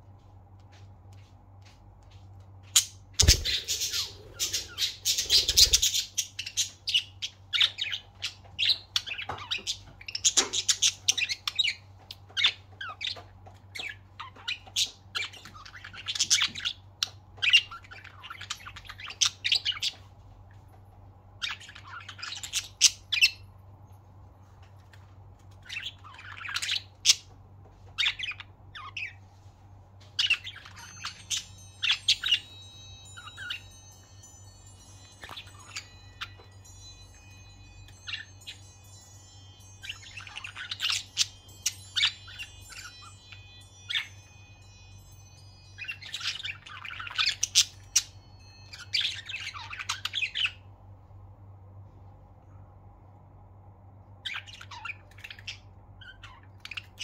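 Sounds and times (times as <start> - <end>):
low steady hum: 0.0 - 57.0
budgerigars chirping: 2.8 - 13.2, 30.2 - 34.0, 35.0 - 36.6, 39.8 - 44.3, 45.8 - 50.6, 54.3 - 57.0
thin high ringing tones: 3.2 - 6.9, 30.2 - 50.7.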